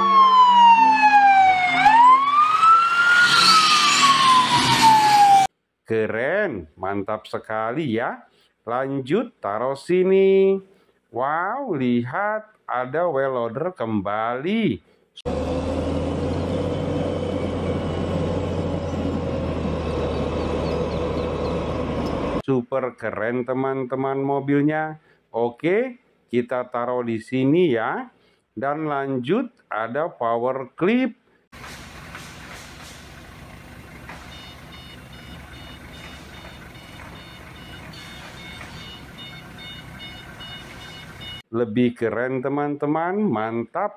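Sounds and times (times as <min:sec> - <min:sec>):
heavy diesel engines droning: 0:15.3 - 0:22.4, 0:31.6 - 0:41.4
forklift reversing alarm beeps: 0:34.1 - 0:41.4.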